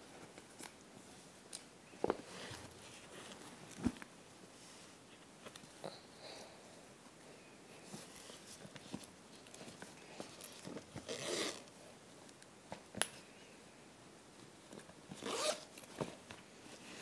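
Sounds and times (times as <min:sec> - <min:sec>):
fabric lining rustling: 0:07.8 - 0:11.8, 0:14.8 - 0:17.0.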